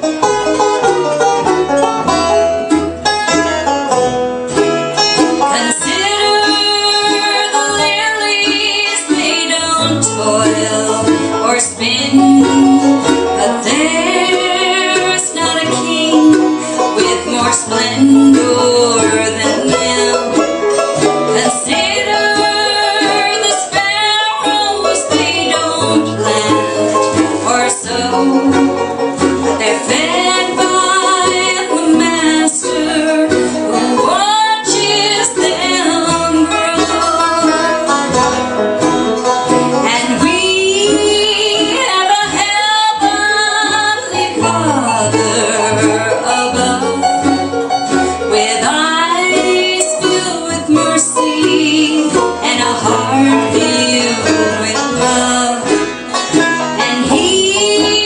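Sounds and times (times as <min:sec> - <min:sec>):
bluegrass band playing: 0:00.0 - 0:58.0
woman singing lead: 0:05.3 - 0:38.1, 0:39.7 - 0:58.0.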